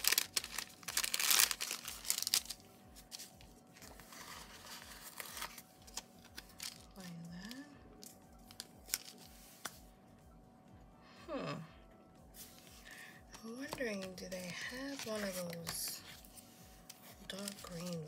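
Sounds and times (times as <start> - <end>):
paper crinkling and rustling: 0.0 - 7.6, 8.4 - 9.8, 13.7 - 18.0.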